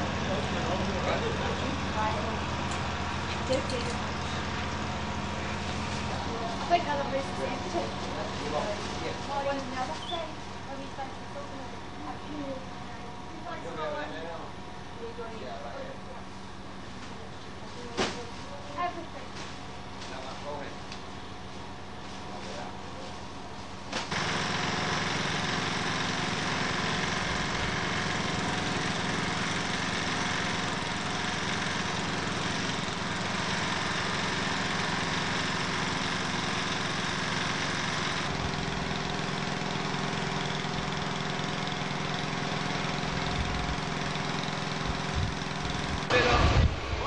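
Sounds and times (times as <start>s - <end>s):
small petrol engine running: 0.0s - 14.4s, 23.9s - 47.0s.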